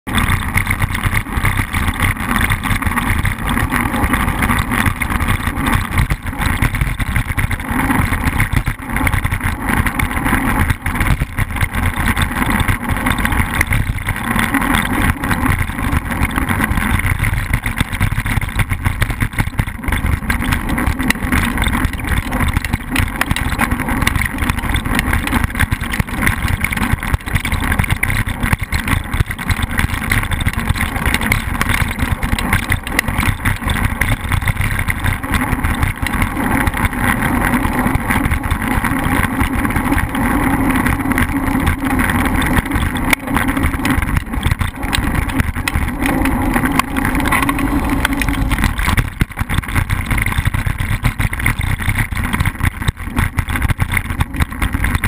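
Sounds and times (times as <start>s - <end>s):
bicycle road rattle: 0.0s - 55.0s
wind rush on microphone: 0.1s - 55.0s.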